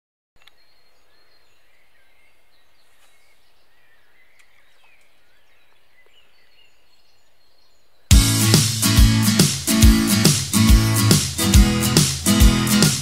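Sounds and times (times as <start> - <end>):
faint clicks: 0.4 - 0.6
faint outdoor hiss: 0.4 - 13.0
songbirds chirping and singing: 0.4 - 13.0.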